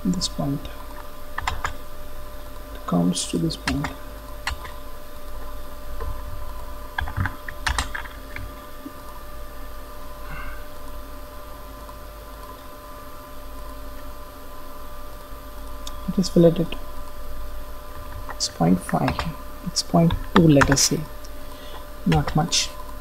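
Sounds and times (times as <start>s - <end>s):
steady background hum: 0.0s - 23.0s
computer keyboard typing: 0.9s - 1.8s, 3.6s - 4.8s, 6.9s - 8.6s, 18.0s - 21.1s, 21.7s - 22.7s.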